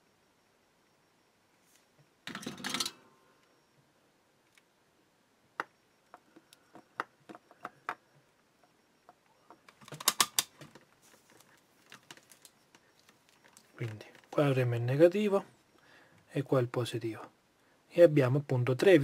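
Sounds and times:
battery cells clicking and tapping: 5.6 - 14.5.

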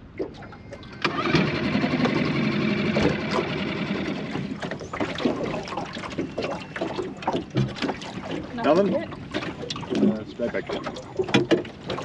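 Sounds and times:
water splashing and dripping: 2.9 - 12.0.

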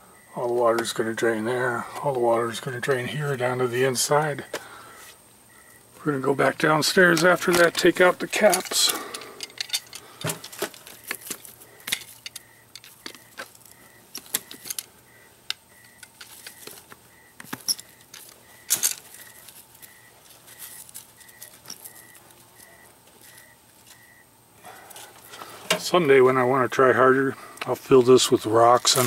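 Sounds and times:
plastic parts clicking: 7.1 - 19.4.

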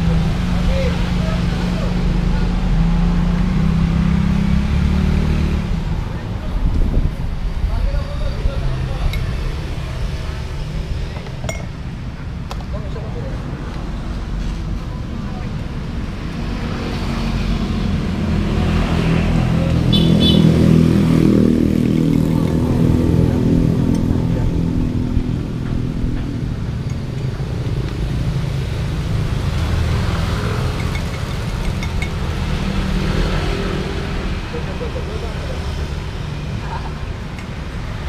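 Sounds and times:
road noise: 0.0 - 38.0
vehicle engine passing: 16.4 - 26.8, 27.4 - 38.0.

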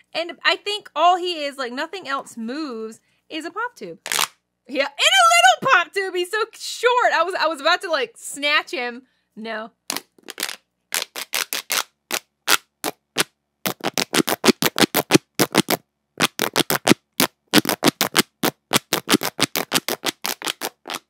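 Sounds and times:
pop tube toy popping: 9.9 - 21.0.

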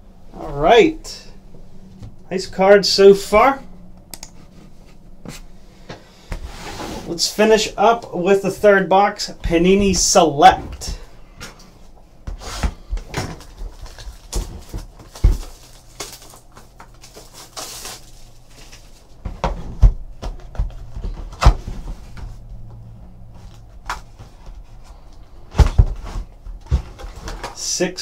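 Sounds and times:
cardboard boxes rustling and sliding: 4.4 - 7.4.

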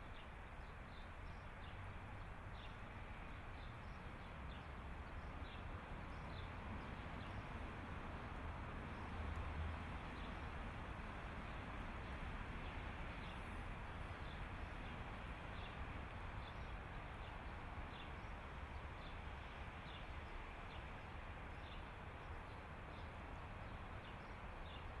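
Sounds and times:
distant traffic hum: 0.1 - 25.0.

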